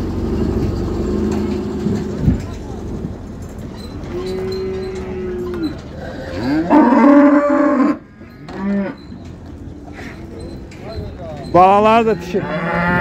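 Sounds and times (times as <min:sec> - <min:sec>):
cattle mooing: 0:04.0 - 0:09.1, 0:11.9 - 0:13.0.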